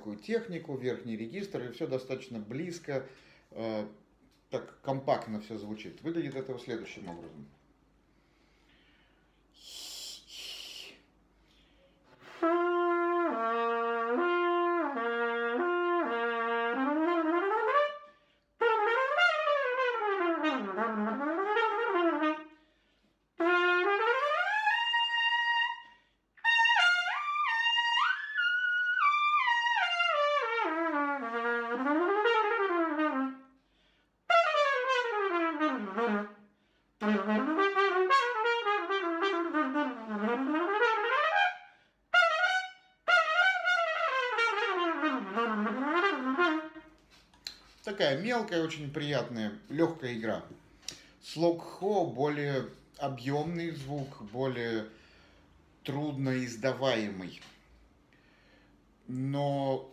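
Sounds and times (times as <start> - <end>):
breath hiss: 8.1 - 12.5
trumpet playing fast scale runs: 12.3 - 22.5, 23.4 - 33.4, 34.3 - 36.4, 37.0 - 46.9.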